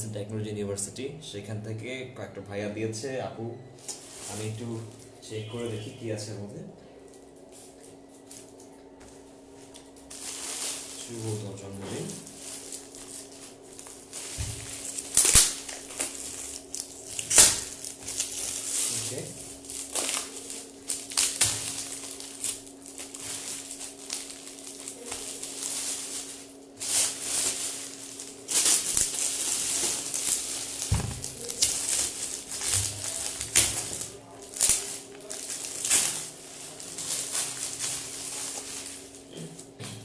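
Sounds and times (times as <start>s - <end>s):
foil wrap crinkling and tearing: 3.8s - 6.0s, 7.2s - 39.8s.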